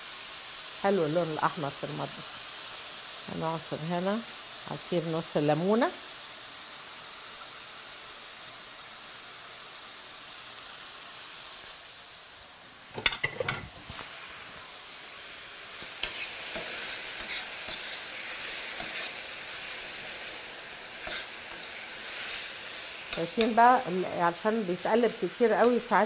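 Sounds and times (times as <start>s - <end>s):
food sizzling in frying pans: 0.0s - 26.0s
utensil scraping a pan: 13.0s - 14.0s, 15.8s - 19.2s, 21.0s - 22.4s.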